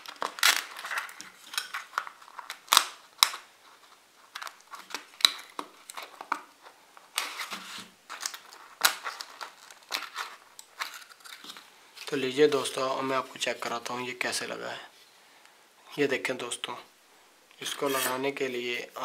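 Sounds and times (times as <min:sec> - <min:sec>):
crinkling and rubbing of paper cone: 0:00.0 - 0:12.3.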